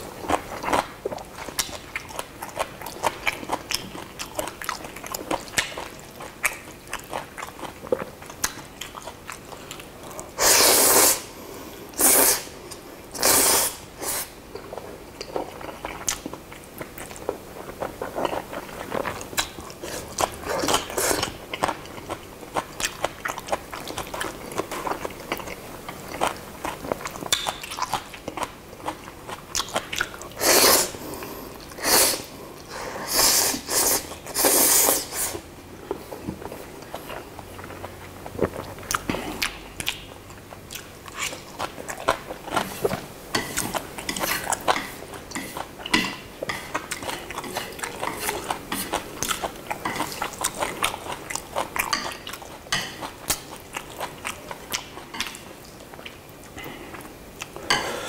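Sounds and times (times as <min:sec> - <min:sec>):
loud hissing slurps: 0:10.4 - 0:11.3, 0:12.0 - 0:12.5, 0:13.2 - 0:14.3, 0:30.4 - 0:31.0, 0:31.8 - 0:35.4
chewing noodles: 0:36.2 - 0:57.5.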